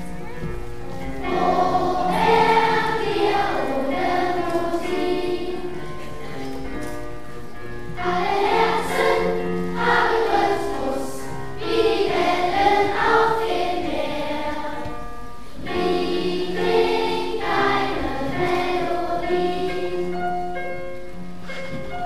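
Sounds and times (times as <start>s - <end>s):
electronic keyboard accompaniment: 0.0s - 22.0s
children's choir singing: 1.0s - 6.9s, 8.0s - 20.5s.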